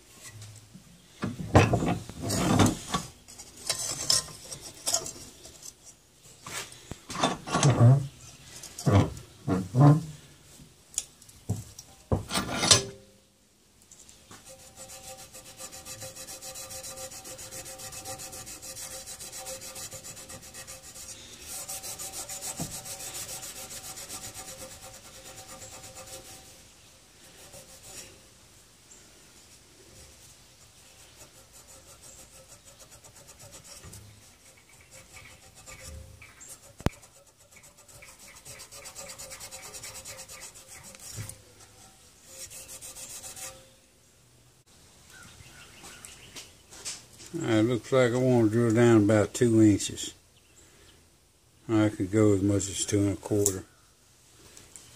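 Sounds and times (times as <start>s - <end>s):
scouring pad scrubbing steel: 14.4s - 26.6s, 30.8s - 41.3s, 42.3s - 43.6s.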